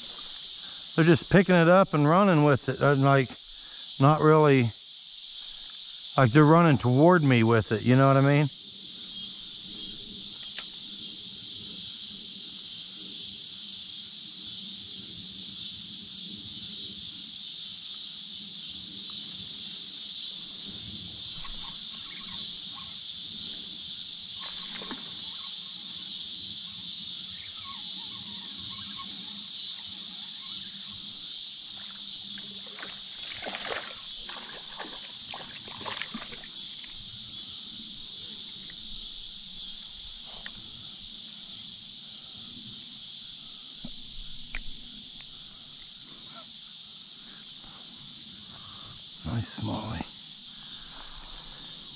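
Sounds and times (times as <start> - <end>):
insects chorus: 0.0 - 51.9
creek water splashing: 24.4 - 25.2, 31.7 - 37.1.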